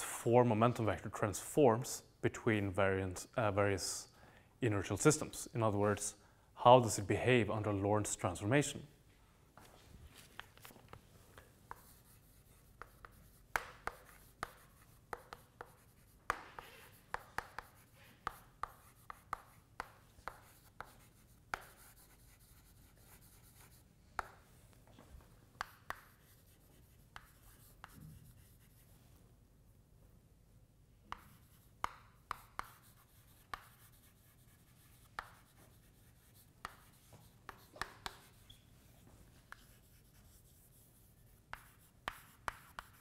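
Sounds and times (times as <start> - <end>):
faint chalk writing on blackboard: 9.6 - 29.2, 31.0 - 43.0.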